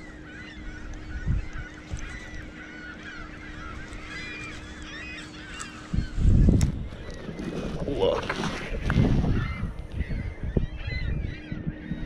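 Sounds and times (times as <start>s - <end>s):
waterbirds calling: 0.0s - 12.0s
wind thumps on microphone: 5.9s - 12.0s.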